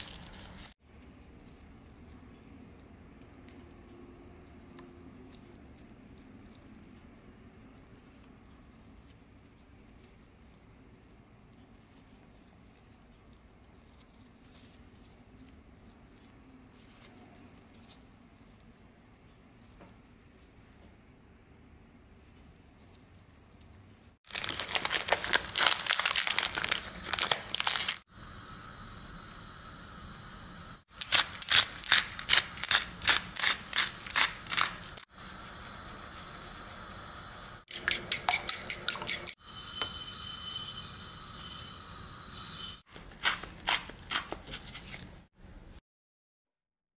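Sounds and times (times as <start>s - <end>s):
gloved hands clicking and rustling: 24.3s - 28.0s, 30.9s - 35.1s, 42.9s - 45.2s
pepper mill grinding: 24.3s - 28.0s, 30.9s - 35.0s, 37.7s - 45.2s.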